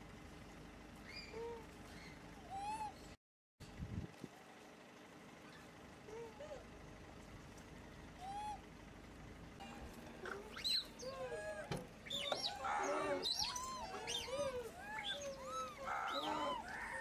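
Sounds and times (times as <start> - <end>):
monkeys cooing and squealing: 10.2 - 17.0.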